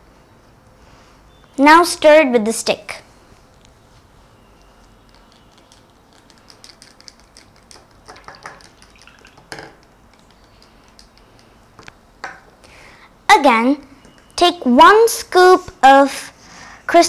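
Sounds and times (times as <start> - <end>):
stick stirring in plastic cup: 4.5 - 11.8.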